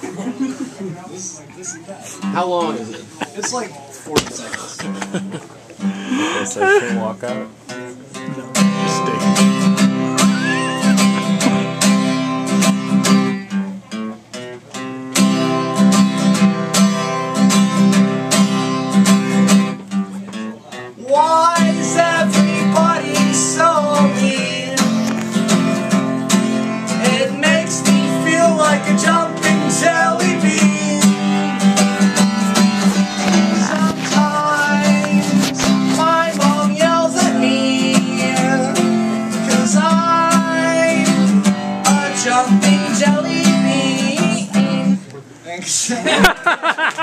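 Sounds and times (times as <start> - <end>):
acoustic guitar strumming: 1.6 - 45.1
person singing: 10.0 - 11.8, 21.0 - 25.8, 26.7 - 31.7, 33.2 - 45.0.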